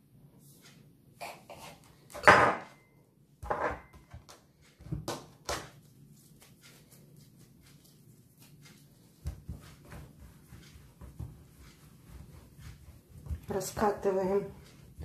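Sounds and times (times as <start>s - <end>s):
knife cutting dough on countertop: 3.4s - 15.0s.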